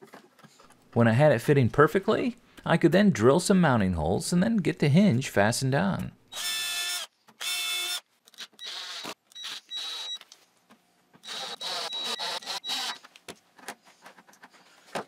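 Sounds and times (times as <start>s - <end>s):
cordless drill whining: 6.4s - 10.2s, 11.2s - 13.1s.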